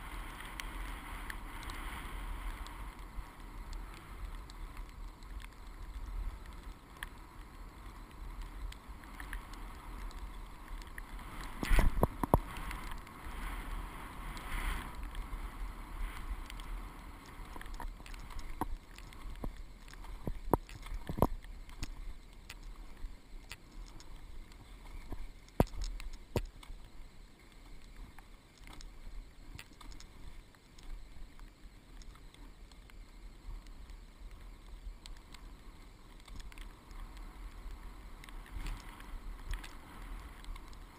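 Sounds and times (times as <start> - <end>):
skis hissing over snow: 0.0 - 27.0, 35.4 - 40.9
wind on microphone: 7.9 - 22.2.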